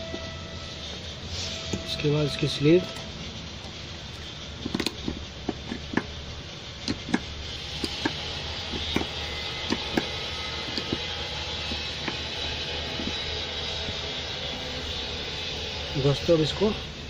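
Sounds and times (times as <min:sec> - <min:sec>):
steady background hum: 0:00.0 - 0:17.0
small parts clicking: 0:03.0 - 0:14.0.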